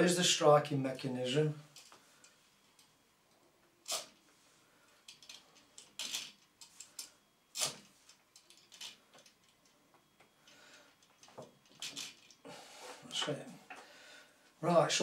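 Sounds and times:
small metallic clicks and scrapes: 0:04.9 - 0:12.4.

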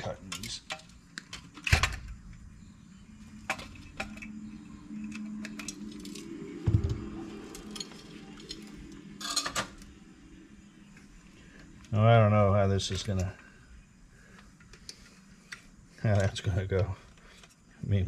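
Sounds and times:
metallic clicks of tools: 0:03.4 - 0:06.4.

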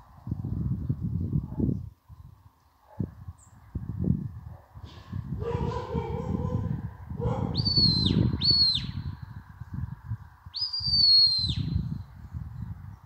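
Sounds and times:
wind buffeting microphone: 0:00.0 - 0:13.0
shepherd whistling: 0:07.5 - 0:09.0, 0:10.6 - 0:11.8.

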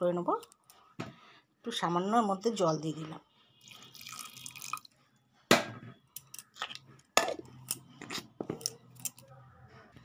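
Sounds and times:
steel jar and lid clicking: 0:06.2 - 0:09.2.

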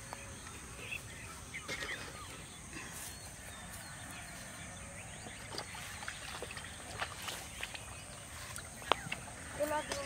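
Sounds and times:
bird chirps: 0:00.0 - 0:10.0.

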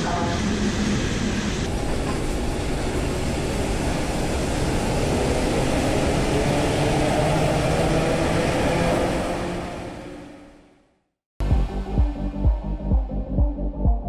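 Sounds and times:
train wheels rumbling on rails: 0:00.0 - 0:10.1.

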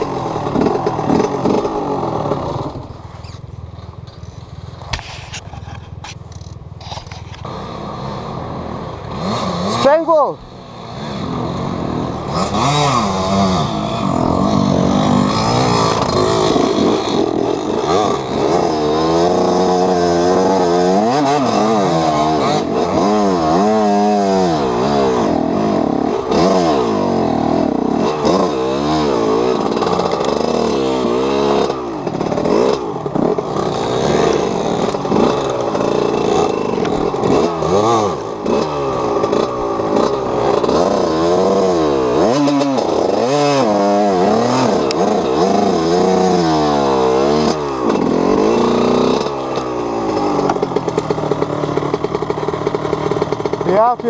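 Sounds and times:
dirt bike engine revving: 0:00.0 - 0:03.4, 0:06.8 - 0:54.0
bike clatter: 0:47.4 - 0:54.0.

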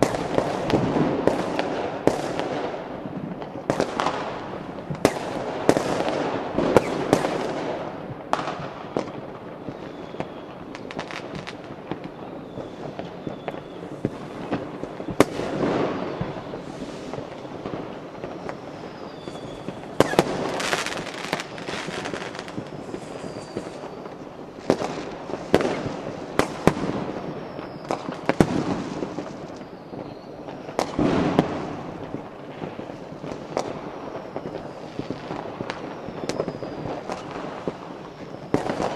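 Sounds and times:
fireworks bangs: 0:00.0 - 0:38.9
fireworks crackling: 0:00.0 - 0:38.9
falling whistles: 0:09.7 - 0:11.1, 0:12.1 - 0:14.1, 0:18.4 - 0:24.4, 0:27.3 - 0:28.3, 0:29.5 - 0:30.5, 0:35.7 - 0:37.4.

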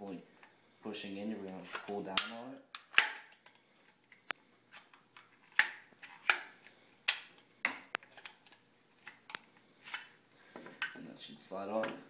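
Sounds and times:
sharp plastic and metal clicks: 0:01.8 - 0:03.6.

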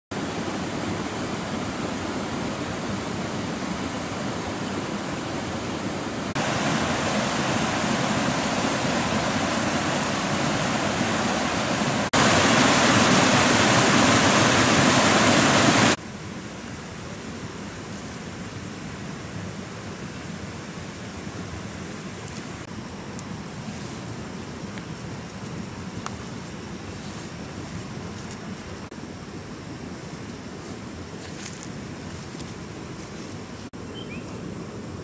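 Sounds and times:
river rushing over rocks: 0:00.2 - 0:16.0.

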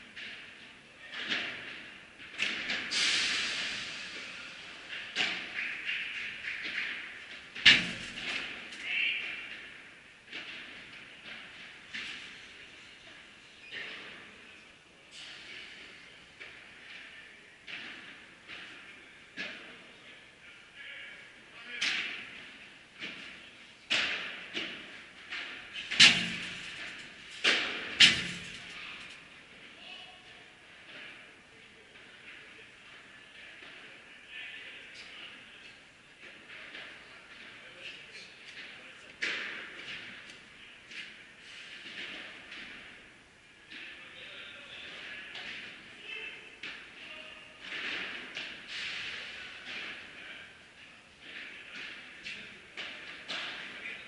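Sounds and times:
ball hitting rackets echoing: 0:04.7 - 0:14.3, 0:21.8 - 0:30.0, 0:38.5 - 0:54.0.

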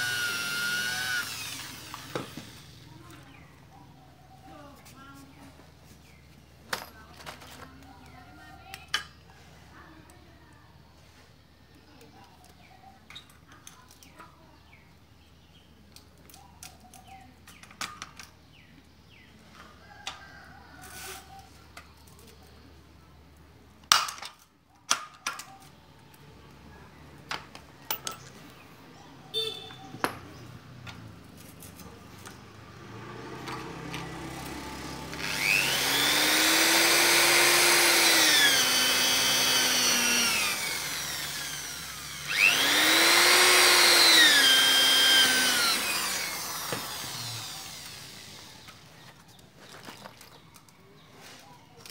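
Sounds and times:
electric drill whining: 0:00.0 - 0:02.8, 0:34.1 - 0:48.9.

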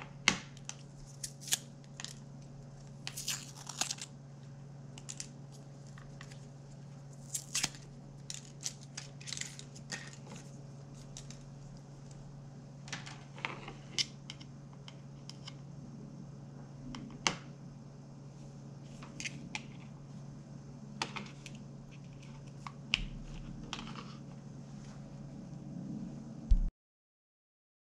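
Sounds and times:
steady low hum: 0:00.0 - 0:26.7
clicks and rustles of handling: 0:05.0 - 0:12.2.

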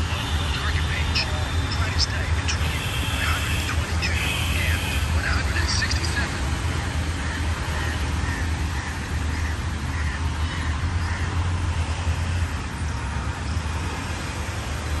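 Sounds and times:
distant road traffic rumble: 0:00.0 - 0:15.0.

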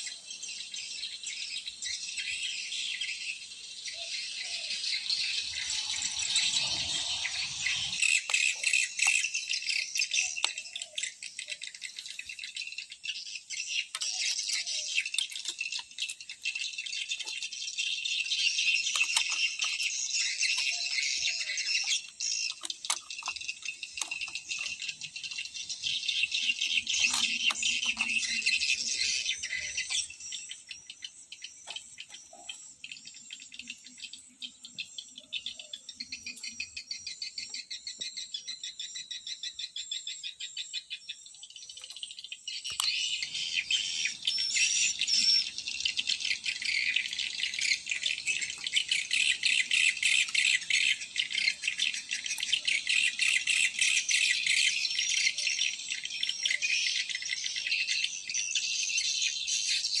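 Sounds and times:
pulsing insect chorus: 0:02.1 - 0:09.9.

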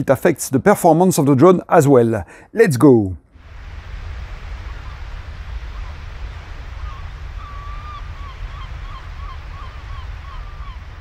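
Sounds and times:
wind: 0:00.0 - 0:11.0
surf: 0:03.4 - 0:11.0
gulls calling: 0:03.7 - 0:11.0.

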